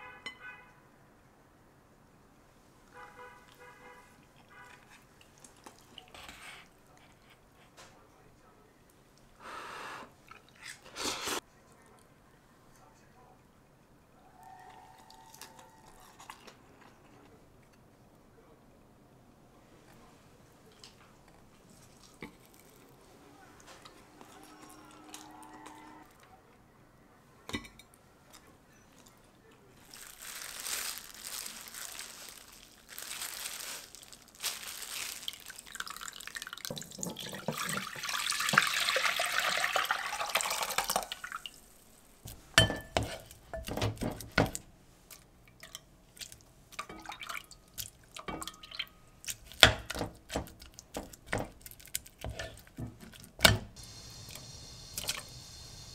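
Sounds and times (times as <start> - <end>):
water sloshing and dripping: 34.6 - 42.0, 45.4 - 51.5.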